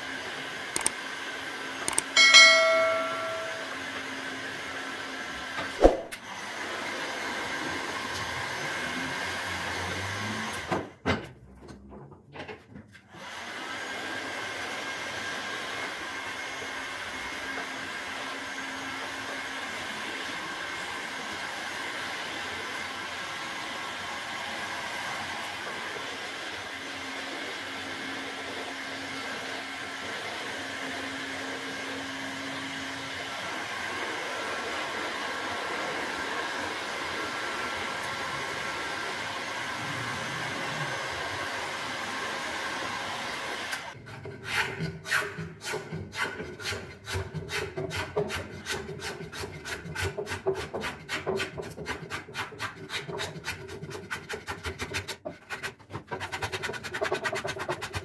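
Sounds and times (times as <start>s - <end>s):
hand sanding wood: 44.3s - 58.0s.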